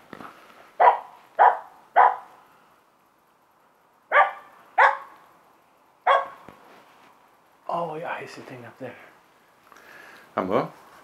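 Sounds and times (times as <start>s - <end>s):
dog barking: 0.8s - 2.4s, 4.1s - 5.2s, 6.0s - 6.5s.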